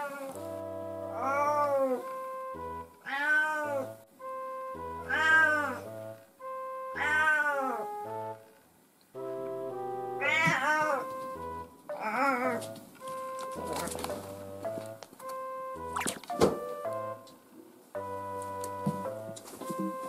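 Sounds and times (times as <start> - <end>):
cat meowing: 0.0 - 0.4, 1.2 - 2.0, 3.0 - 3.9, 5.1 - 5.8, 6.9 - 7.9, 10.2 - 11.3, 11.9 - 12.6
background music: 0.0 - 20.0.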